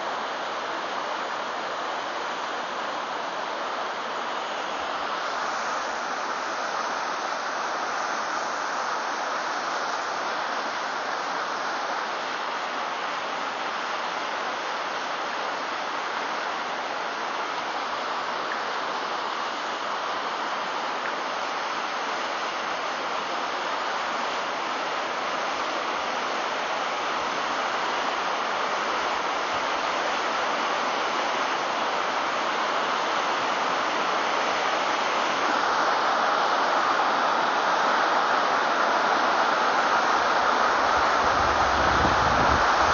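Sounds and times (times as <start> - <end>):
river rapids rushing: 0.0 - 42.9.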